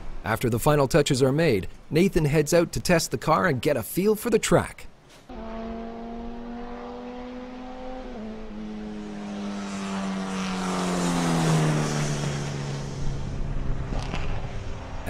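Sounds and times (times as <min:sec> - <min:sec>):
race car engine passing: 0:05.3 - 0:15.0.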